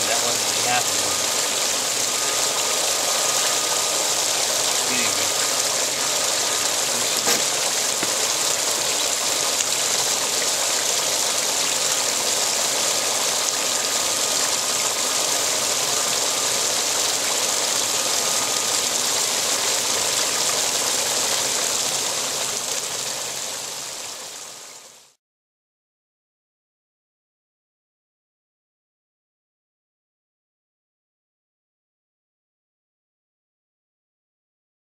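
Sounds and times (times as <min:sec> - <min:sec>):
water pouring and splashing: 0:00.0 - 0:25.0.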